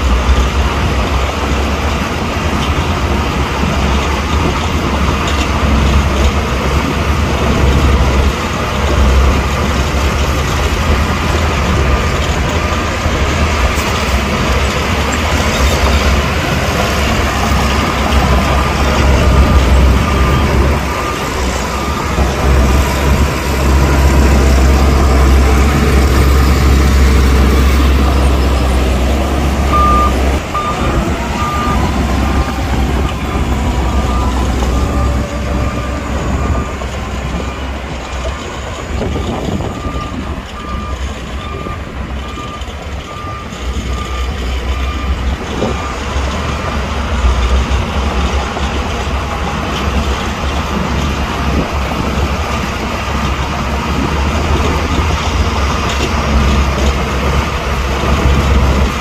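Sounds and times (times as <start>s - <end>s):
bulldozer diesel engine: 0.0s - 59.0s
reversing alarm beeps: 15.4s - 28.8s, 29.4s - 37.6s, 38.5s - 46.9s.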